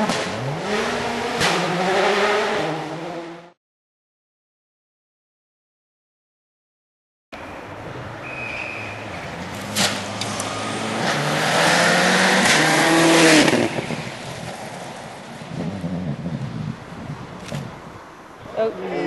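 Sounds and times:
rally car engine passing: 0.0 - 3.6, 8.5 - 16.2.

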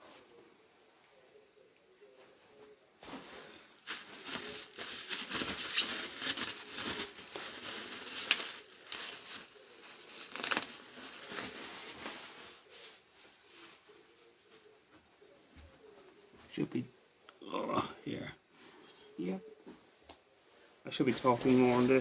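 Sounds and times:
packing material rustling: 3.0 - 13.8, 21.0 - 22.0.

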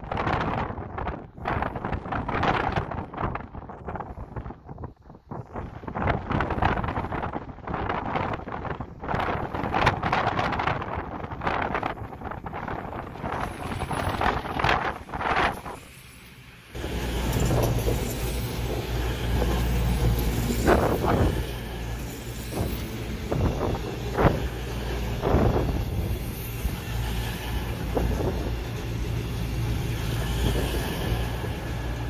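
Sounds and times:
diesel train engine humming: 12.1 - 32.0.

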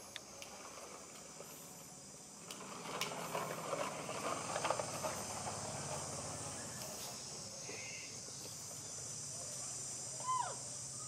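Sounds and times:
high hiss: 0.0 - 11.0
plastic toy truck rolling on tiles: 0.1 - 7.4.

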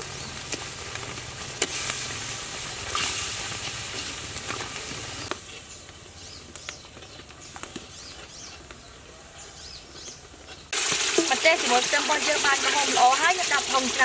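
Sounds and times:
cream sizzling in a pot: 0.0 - 5.7, 10.7 - 14.0.

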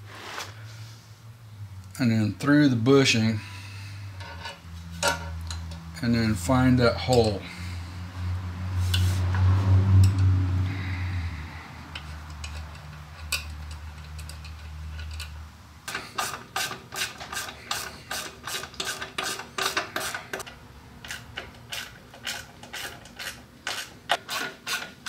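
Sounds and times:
metal hardware tapping: 4.2 - 5.9.

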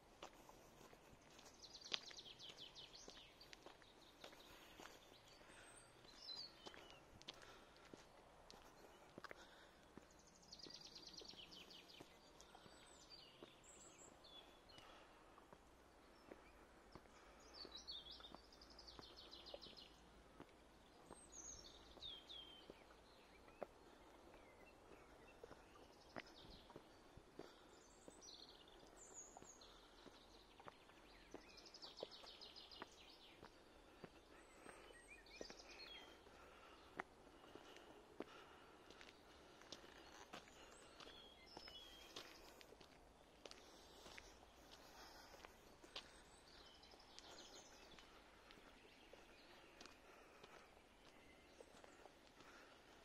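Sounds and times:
songbirds trilling: 0.3 - 53.0.

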